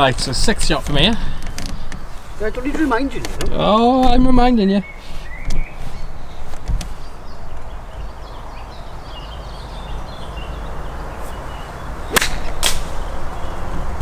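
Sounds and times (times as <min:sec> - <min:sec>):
small birds chirping: 0:00.0 - 0:14.0
golf club striking ball: 0:12.1 - 0:13.0.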